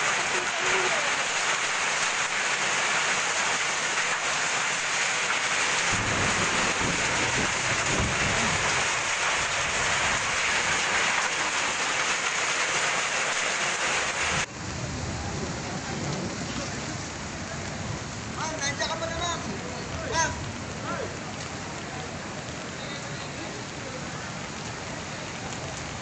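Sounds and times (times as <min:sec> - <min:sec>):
hail and rain on metal roof: 0:00.0 - 0:14.5.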